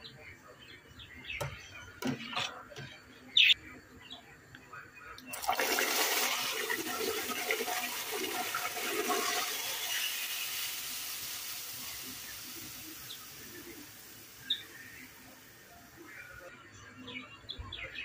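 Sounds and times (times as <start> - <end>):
hot oil hissing in soup: 5.4 - 16.0.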